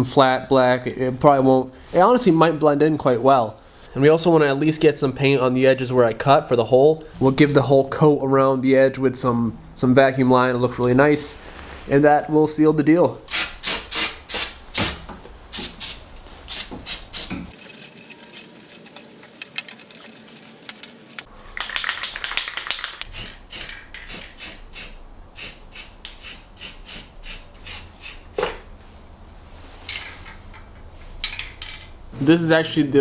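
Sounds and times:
spray can ball rattling: 15.6 - 28.6
spray hiss: 23.0 - 28.5.

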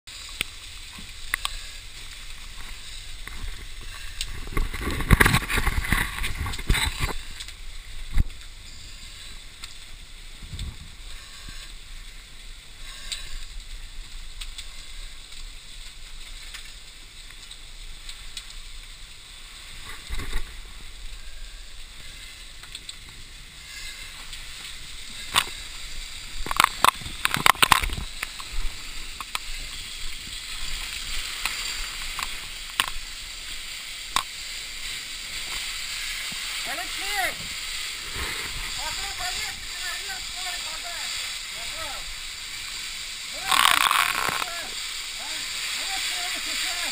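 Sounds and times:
fire hissing: 0.1 - 46.9.

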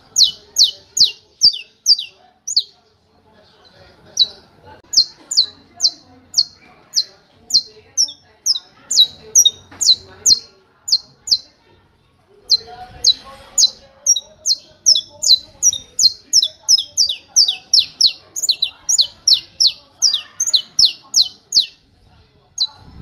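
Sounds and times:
finch singing sharp clipped notes: 0.1 - 2.7, 12.5 - 21.8.

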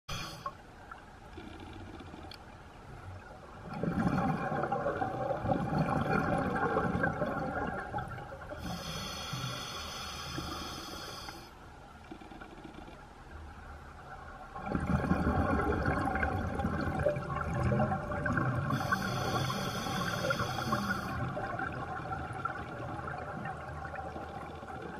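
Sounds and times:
hissing inhale through regulator: 0.1 - 0.6, 8.6 - 11.6, 18.7 - 21.3
exhaled bubbles rushing: 3.7 - 8.2, 14.6 - 18.8.

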